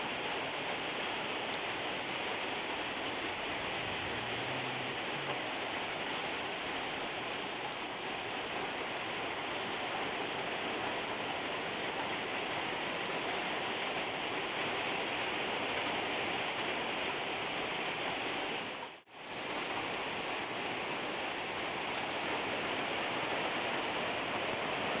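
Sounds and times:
heavy rain falling: 0:00.0 - 0:25.0.

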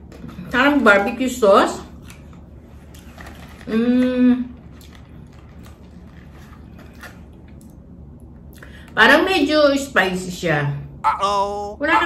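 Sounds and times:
woman humming: 0:03.7 - 0:04.5.

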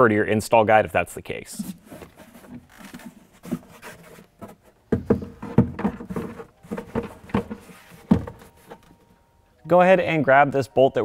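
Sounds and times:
plastic airbox knocking: 0:01.7 - 0:09.0.

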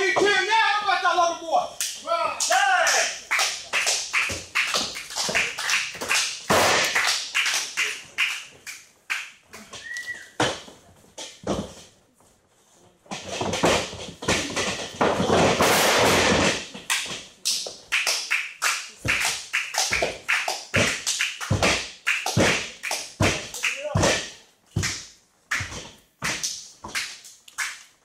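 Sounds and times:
wrestlers hitting the ring: 0:06.0 - 0:07.2, 0:13.2 - 0:17.3.

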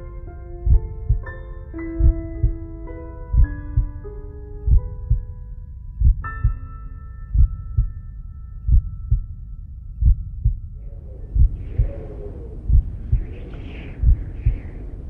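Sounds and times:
heartbeat thumps: 0:00.6 - 0:01.3, 0:02.0 - 0:02.6, 0:03.3 - 0:04.1, 0:04.7 - 0:05.4, 0:06.0 - 0:06.6, 0:07.3 - 0:08.0, 0:08.7 - 0:09.3, 0:10.0 - 0:14.8.

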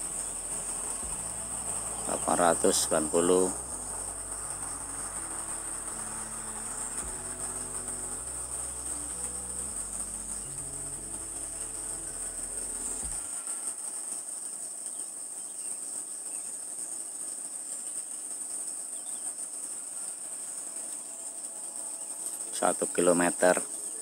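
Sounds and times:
low background music: 0:00.0 - 0:13.8
insects chirring: 0:00.0 - 0:24.0.

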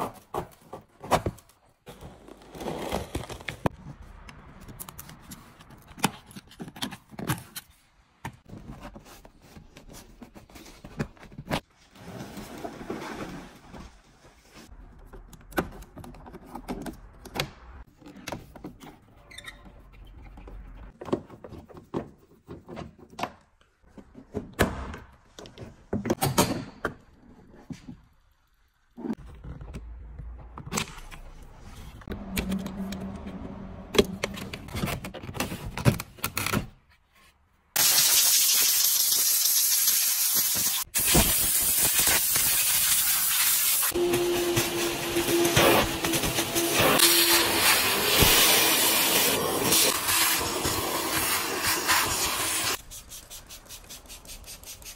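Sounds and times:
vacuum cleaner running: 0:43.9 - 0:52.7.

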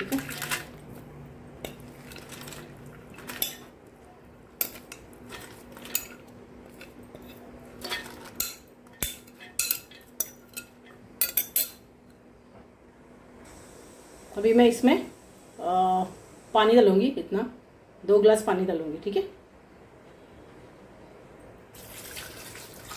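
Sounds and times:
faint steady hum: 0:00.0 - 0:22.9
glass bowl clinking against metal pot: 0:04.6 - 0:11.8.

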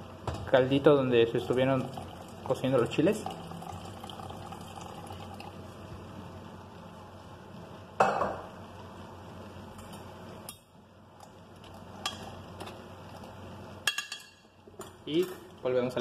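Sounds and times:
utensils and cookware clinking: 0:13.8 - 0:15.5.

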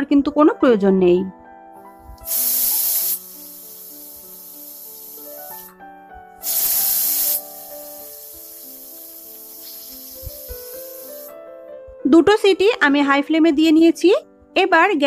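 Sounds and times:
pressure cooker whistle hiss: 0:02.2 - 0:05.7, 0:06.4 - 0:11.3.

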